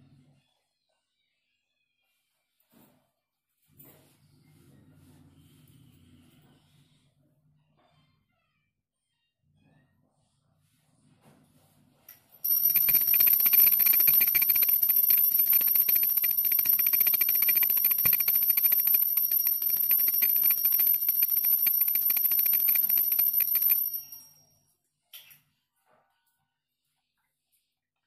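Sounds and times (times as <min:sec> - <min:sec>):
hand bell rung rapidly: 0:12.4 - 0:24.5.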